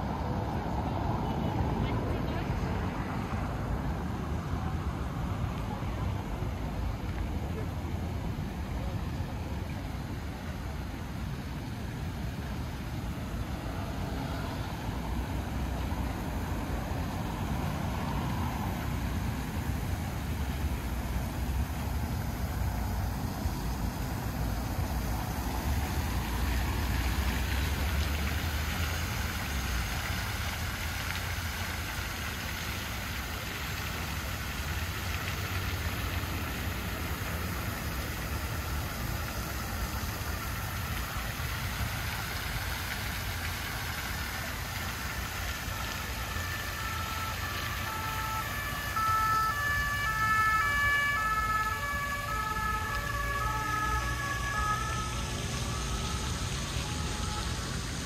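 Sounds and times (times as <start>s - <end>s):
city traffic rumble: 0.0s - 58.0s
fountain splashing: 0.0s - 58.0s
two-tone siren: 46.0s - 58.0s.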